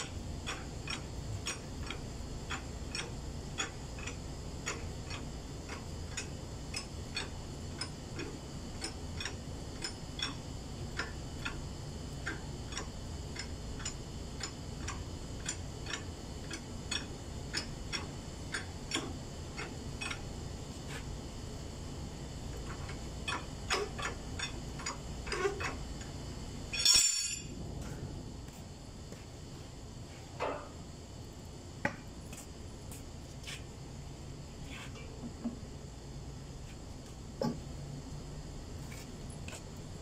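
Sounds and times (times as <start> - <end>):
steady light clicking: 0.0 - 20.2.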